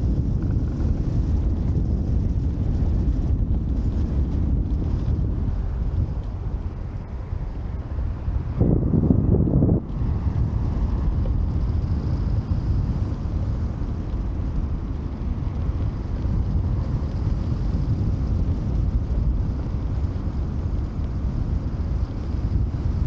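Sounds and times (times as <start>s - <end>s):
wind rushing over microphone: 0.0s - 23.0s.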